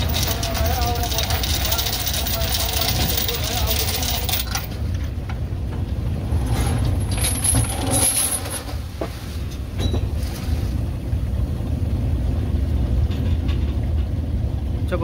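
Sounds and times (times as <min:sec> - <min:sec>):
boat engine rumbling: 0:00.0 - 0:15.0.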